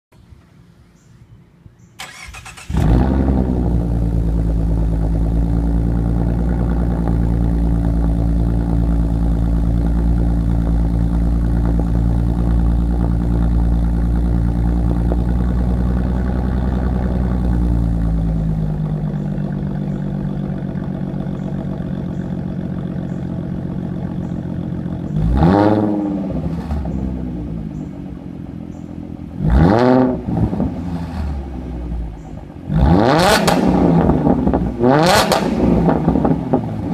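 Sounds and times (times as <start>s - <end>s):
car engine starting and idling: 1.8s - 36.9s
engine revving blips: 2.0s - 7.4s, 24.0s - 28.0s, 28.7s - 36.9s.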